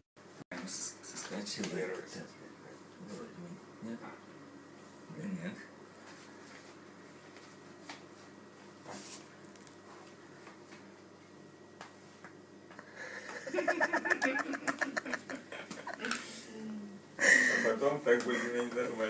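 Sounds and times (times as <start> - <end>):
person laughing hard: 13.0 - 16.1.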